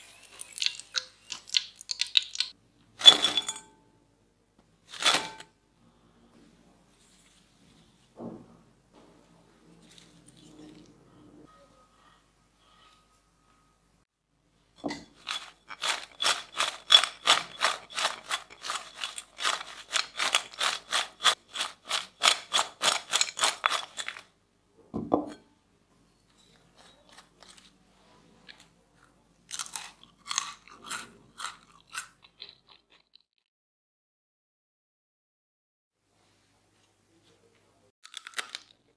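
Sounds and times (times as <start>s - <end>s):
potato chips crunching in a glass bowl: 0.0s - 2.5s, 15.1s - 24.3s, 26.5s - 27.8s, 29.5s - 33.2s, 38.0s - 38.9s.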